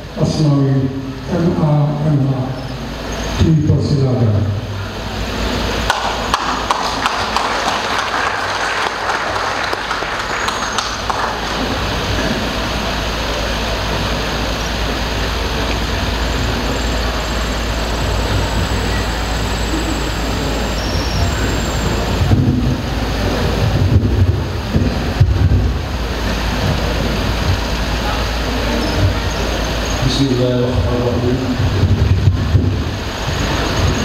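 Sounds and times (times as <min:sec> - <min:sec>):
low rumble and hiss: 0:00.0 - 0:34.0
audience clapping: 0:05.8 - 0:13.2.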